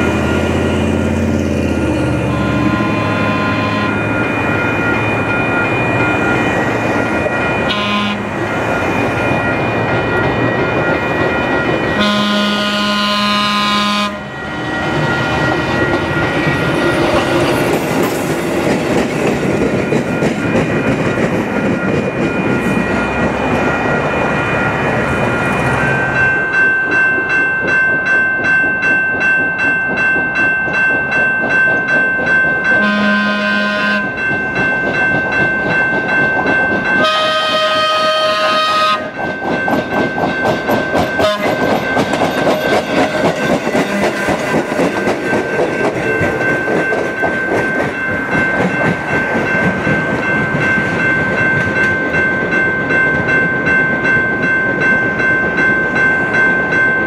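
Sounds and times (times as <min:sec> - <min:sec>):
crossing warning bell ringing: 0:00.0 - 0:57.0
trolley horn short blasts: 0:02.3 - 0:04.0, 0:07.7 - 0:08.3, 0:12.0 - 0:14.3, 0:32.8 - 0:34.1, 0:37.0 - 0:39.1, 0:41.2 - 0:41.6
wheels clicking over rail joints: 0:25.2 - 0:33.4, 0:34.0 - 0:56.8.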